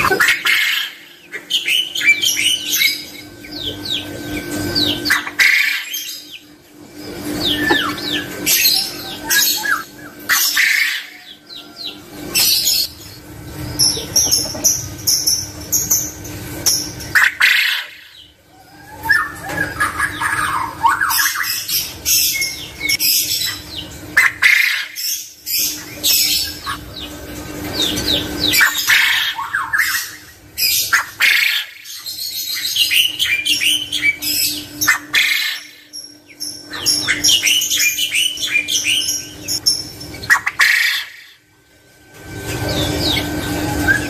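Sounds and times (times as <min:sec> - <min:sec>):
quail chirping and squawking: 0:00.0 - 0:41.5, 0:42.3 - 0:44.0.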